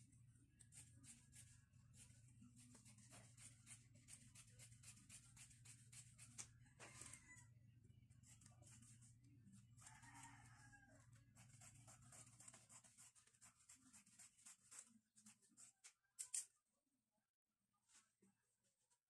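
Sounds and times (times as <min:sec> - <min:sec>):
scissors snipping cloth: 0:11.4 - 0:16.5.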